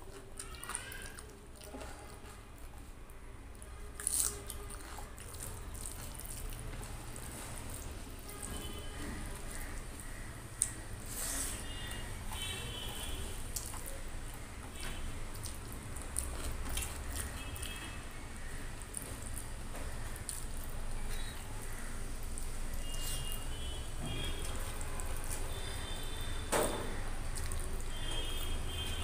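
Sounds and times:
mouth eating sounds: 3.6 - 26.2.

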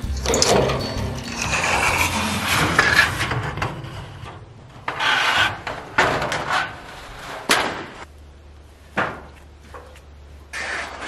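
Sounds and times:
metal roofing sheet scraping: 0.0 - 8.1, 10.5 - 11.0.

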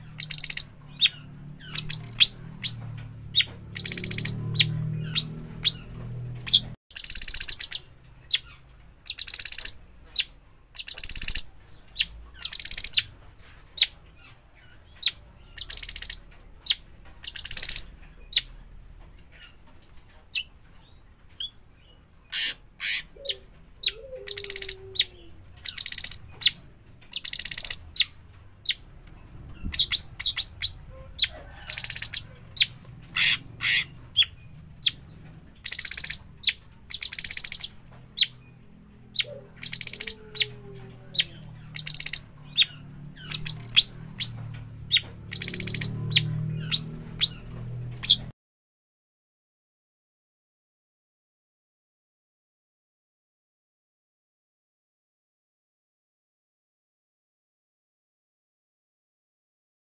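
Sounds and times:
bird chirping high and sharp: 0.0 - 13.1, 13.7 - 18.6, 20.3 - 28.8, 29.5 - 38.6, 39.2 - 40.5, 41.2 - 48.3.

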